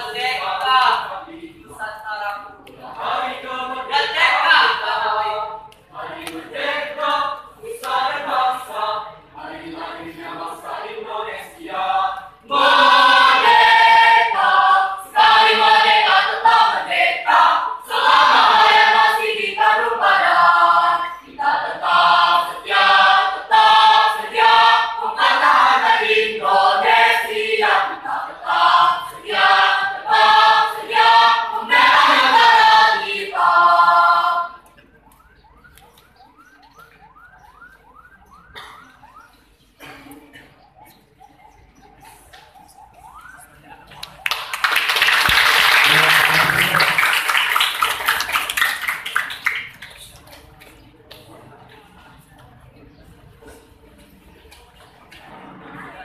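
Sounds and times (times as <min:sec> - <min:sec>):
mixed choir singing: 0:00.0 - 0:34.7.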